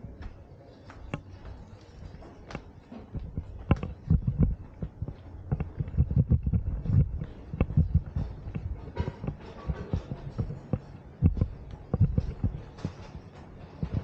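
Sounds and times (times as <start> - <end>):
footsteps on stone paving: 0.1 - 13.1
heavy low thuds: 3.2 - 10.6.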